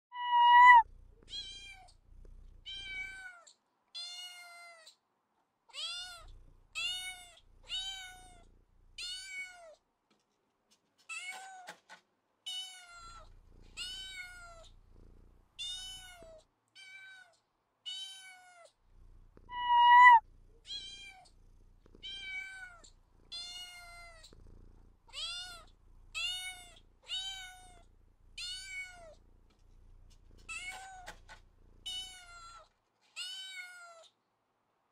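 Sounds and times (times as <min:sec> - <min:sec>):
cat meowing: 0:00.1 - 0:01.9, 0:19.5 - 0:21.3, 0:22.0 - 0:24.3.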